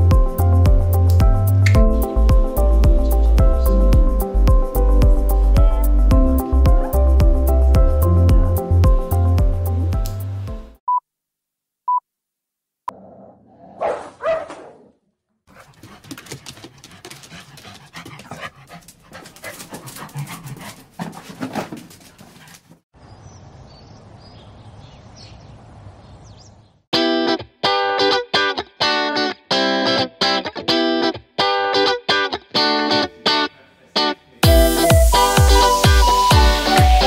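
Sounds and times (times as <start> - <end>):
guitar music: 0.0 - 10.5, 27.0 - 37.0
dog barking and whimpering: 6.6 - 7.2, 13.0 - 15.7.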